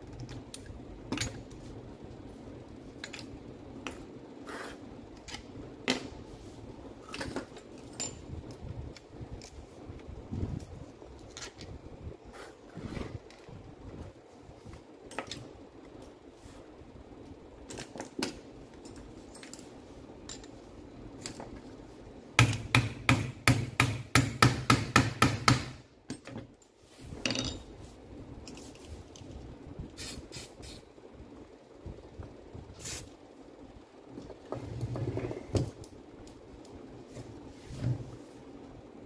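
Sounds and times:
tool handling knocks and clicks: 22.4 - 26.6.

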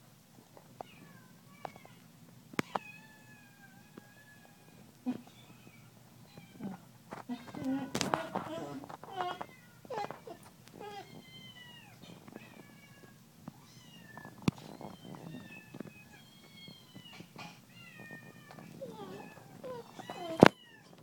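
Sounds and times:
kittens meowing through speakers: 2.6 - 21.0.

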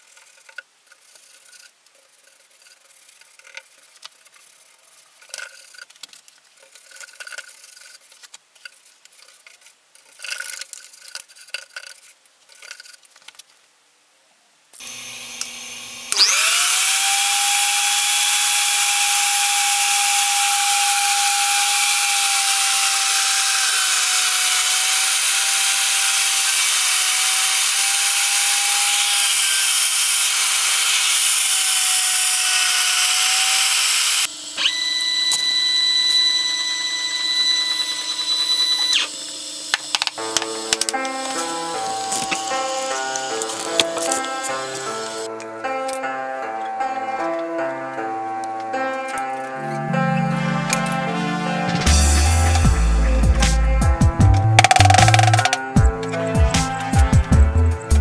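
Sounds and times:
paintbrush scratching on wood: 0.0 - 6.0
router spindle whining: 14.8 - 45.3, 54.6 - 56.2.

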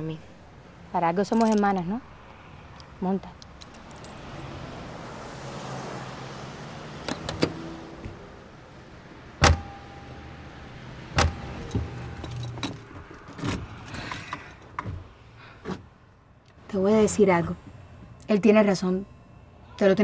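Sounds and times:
car door clicks: 7.0 - 8.2, 9.4 - 9.9, 11.1 - 15.0
car doors slamming: 7.0 - 8.2, 9.4 - 10.4, 11.0 - 13.8.

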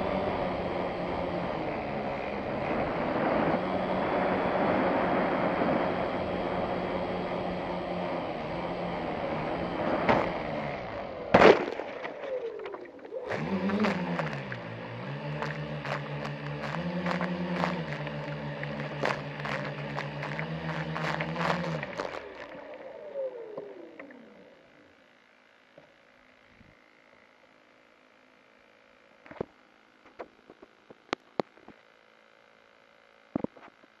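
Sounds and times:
faint electronic hum: 0.0 - 34.0
small model boat motor: 0.0 - 34.0
water slapping: 11.4 - 22.7.

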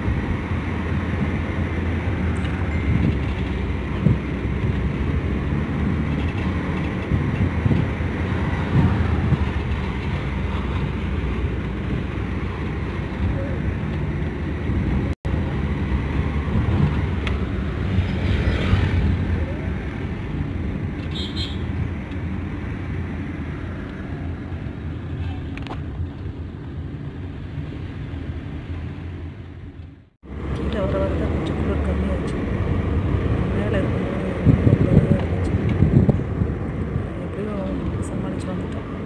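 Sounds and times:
car engine and tyres rumbling: 0.0 - 39.0.

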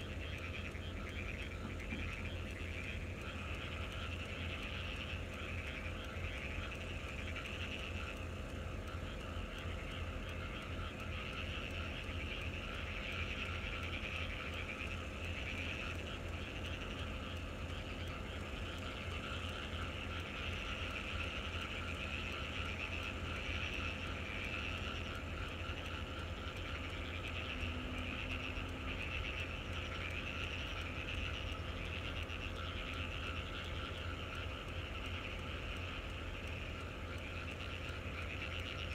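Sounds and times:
chorus of frogs calling: 0.0 - 38.9
low steady hum: 0.0 - 38.9
low steady rumble: 0.0 - 38.9.

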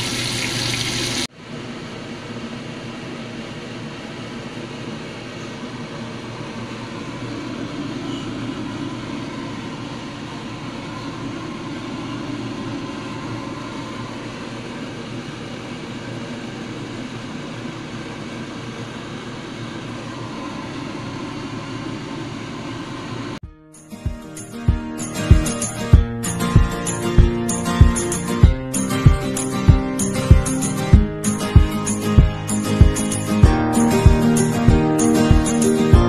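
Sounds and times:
fan whirring hum: 0.0 - 23.4.

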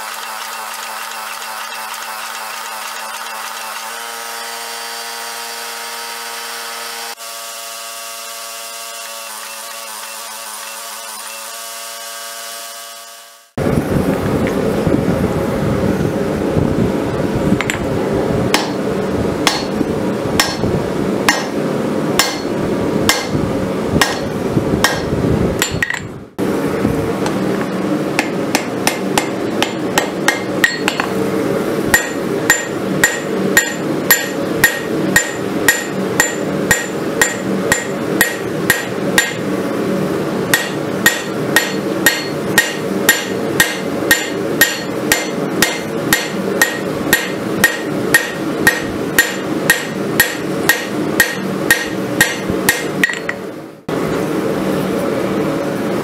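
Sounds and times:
hammer striking hot steel on anvil: 18.5 - 18.8, 19.4 - 19.8, 20.4 - 20.7, 21.3 - 21.6, 22.2 - 23.4, 24.0 - 26.1, 28.2 - 31.1, 31.9 - 39.5, 40.5 - 53.5.

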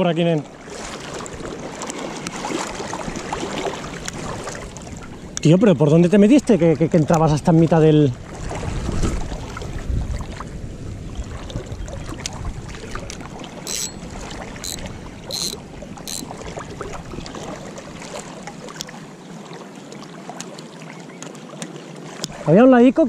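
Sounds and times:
river water sloshing and lapping: 0.0 - 23.0
short sharp high sounds: 13.7 - 16.2
fishing reel ticking: 13.7 - 16.3.

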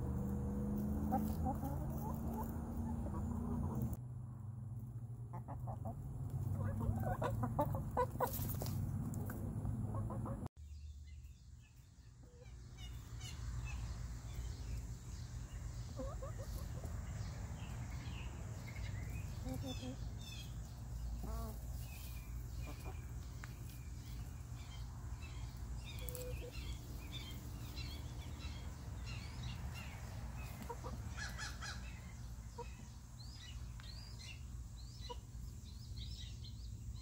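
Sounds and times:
hens clucking: 0.0 - 4.0, 5.3 - 10.5, 12.2 - 17.3, 18.6 - 33.0.

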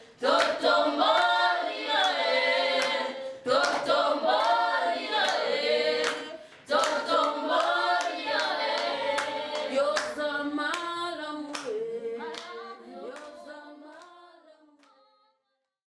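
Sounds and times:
voices singing: 0.0 - 14.3
hand claps: 0.3 - 1.4, 2.0 - 10.9, 11.5 - 12.5.

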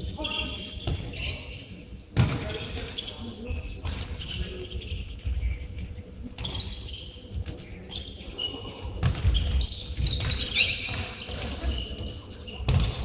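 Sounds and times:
shoes squeaking on floor: 7.9 - 12.2.

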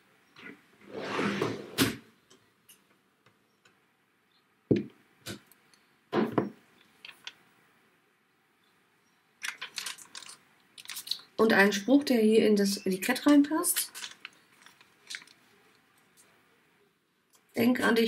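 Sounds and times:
plastic sheets rustling: 9.4 - 11.4, 13.2 - 16.1.

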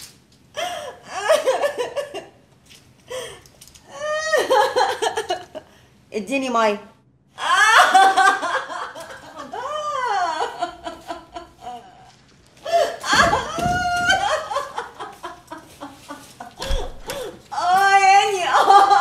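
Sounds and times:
woman wailing and whimpering: 3.9 - 4.8, 7.4 - 8.1, 9.5 - 10.7, 12.7 - 14.6, 16.6 - 18.7.

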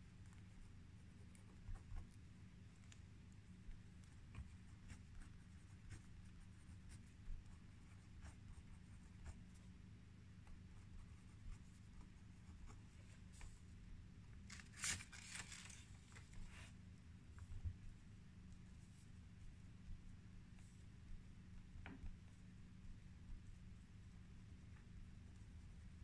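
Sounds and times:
low steady hum: 0.0 - 26.0
pen scratching on paper: 4.0 - 9.6, 10.5 - 13.6.

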